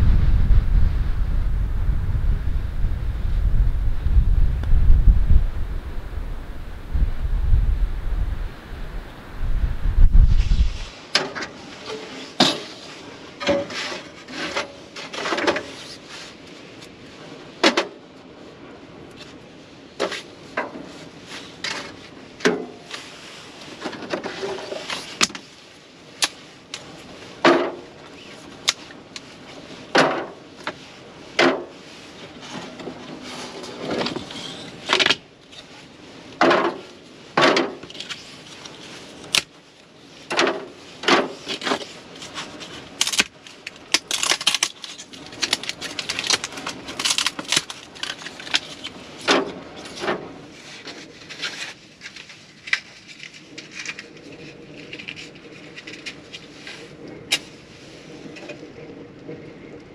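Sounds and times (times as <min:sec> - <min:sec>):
wood scraping: 0:00.0 - 0:11.0.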